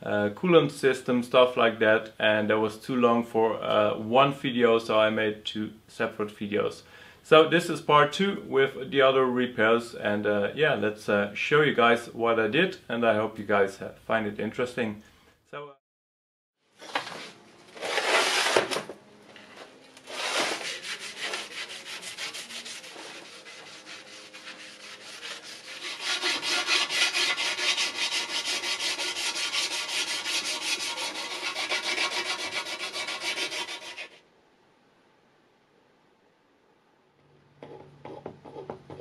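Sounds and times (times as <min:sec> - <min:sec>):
scouring pad scrubbing metal: 0:20.1 - 0:34.2.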